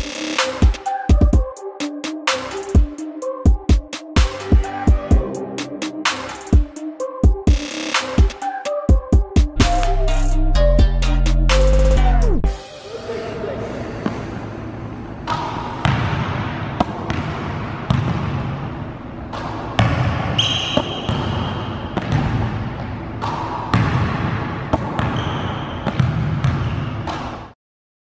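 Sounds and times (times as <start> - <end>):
basketballs bouncing on wooden floor: 15.3 - 18.6, 19.3 - 27.3
shoe squeaks: 20.4 - 21.9, 25.0 - 26.0.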